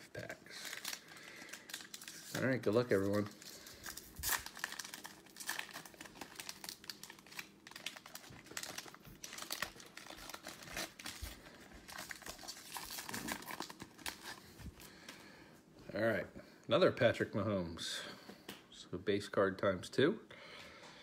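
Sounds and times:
foil wrapper crinkling and tearing: 0.0 - 14.9.

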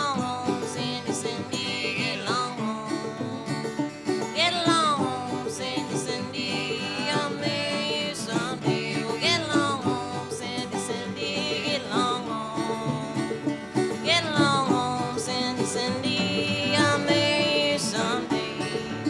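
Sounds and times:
plucked banjo: 0.0 - 19.0
sliding melody line: 4.2 - 19.0.

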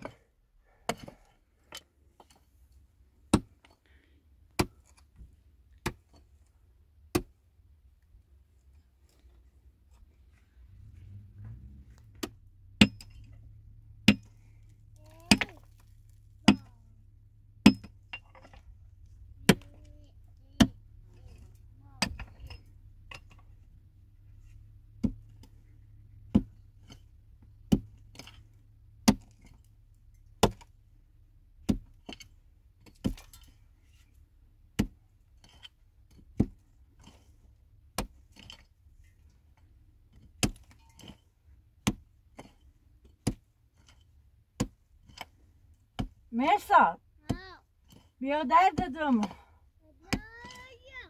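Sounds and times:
hand tool striking: 14.0 - 14.4.

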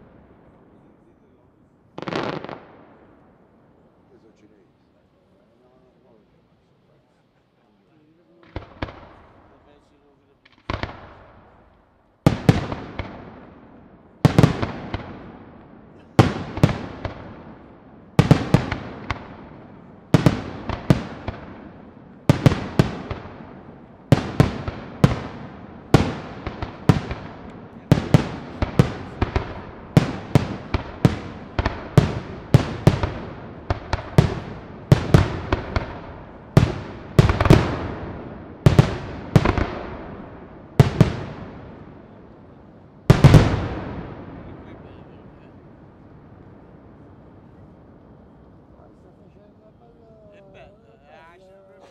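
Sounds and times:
firework shells booming: 1.9 - 3.6, 8.4 - 47.1.

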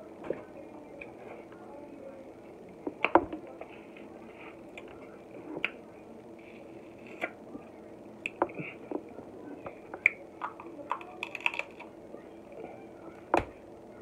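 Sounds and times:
crab shells cracking: 10.0 - 11.9.

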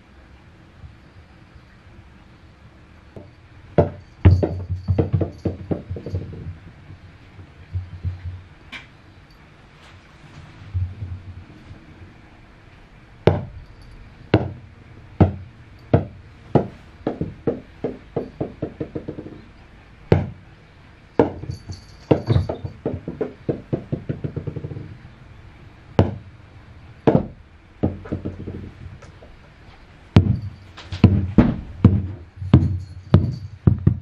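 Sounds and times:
rubber balls bouncing on wooden floor: 3.2 - 8.8, 14.3 - 14.6, 15.2 - 19.5, 20.1 - 20.4, 21.2 - 25.0, 26.0 - 26.3, 27.0 - 29.2, 30.2 - 34.0.

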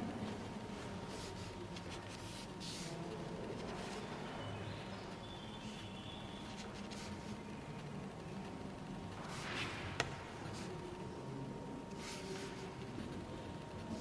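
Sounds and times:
low room hum: 0.0 - 14.0
pencil strokes on paper: 1.1 - 4.0, 6.4 - 7.4, 11.9 - 13.2.

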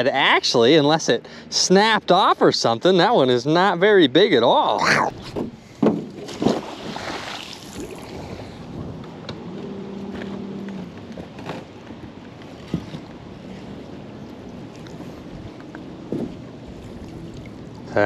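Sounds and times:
water around boat: 0.0 - 18.0
wind noise: 5.0 - 10.0.

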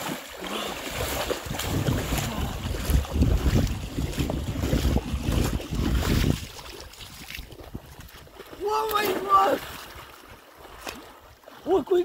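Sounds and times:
water splashing from wading: 0.0 - 12.0
wind rumble on microphone: 1.0 - 8.5.

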